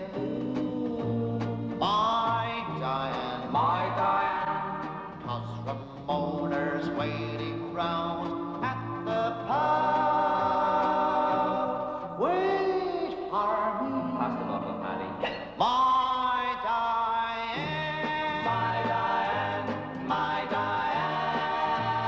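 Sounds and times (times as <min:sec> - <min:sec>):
male vocal trio singing: 0:00.0 - 0:12.3, 0:13.1 - 0:22.0.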